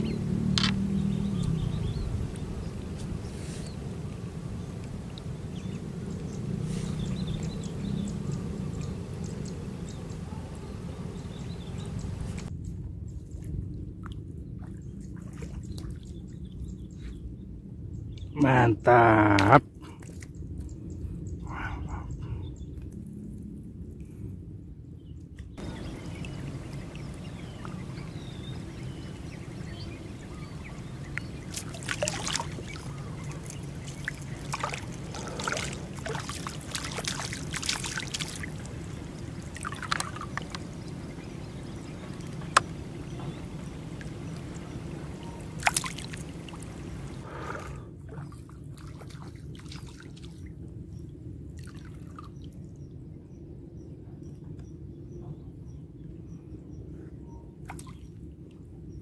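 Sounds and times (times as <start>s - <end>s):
water splashes: 0.0s - 12.5s, 25.6s - 50.5s, 51.5s - 52.4s
steady low rumble: 0.0s - 15.1s, 20.4s - 48.0s
water trickling and sloshing: 0.0s - 17.4s, 19.8s - 20.8s, 25.6s - 53.0s, 57.6s - 59.0s.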